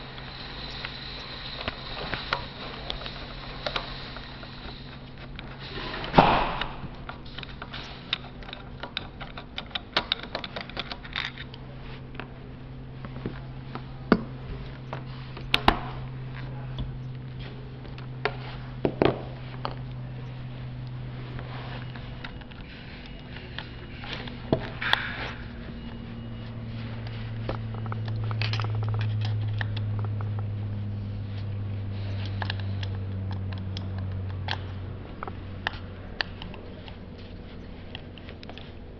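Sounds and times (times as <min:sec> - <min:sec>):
tools tapping on metal parts: 0:00.0 - 0:12.4, 0:13.0 - 0:38.9
low hum: 0:00.0 - 0:38.9.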